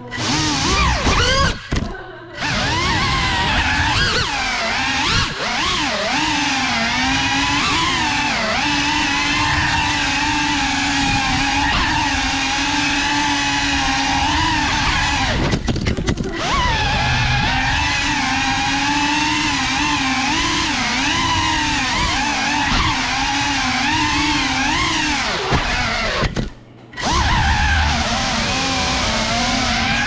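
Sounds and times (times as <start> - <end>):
quadcopter propellers whining: 0.0 - 1.7, 2.4 - 26.4, 27.0 - 30.0.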